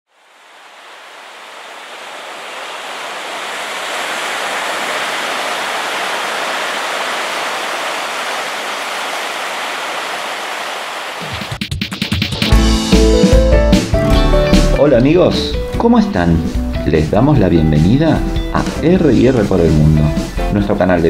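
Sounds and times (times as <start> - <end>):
waves breaking on a beach: 0.1 - 11.6.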